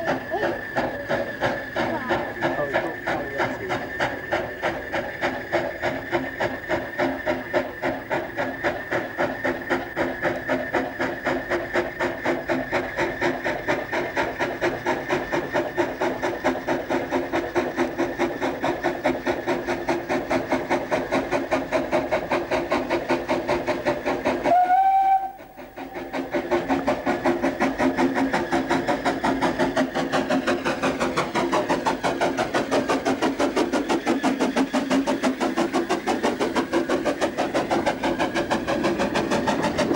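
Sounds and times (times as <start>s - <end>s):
steam hiss: 0.0s - 39.9s
steam locomotive exhaust beats: 0.0s - 39.9s
train whistle: 24.4s - 26.2s.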